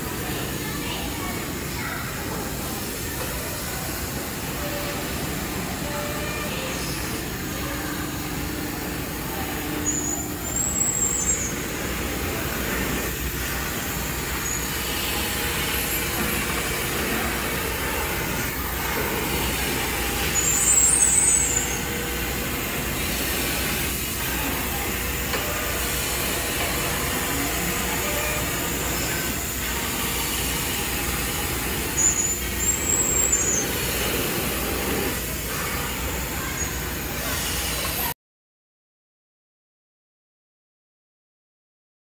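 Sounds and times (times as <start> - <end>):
router milling foam: 5.2 - 37.9
short high squeaks: 9.7 - 11.8.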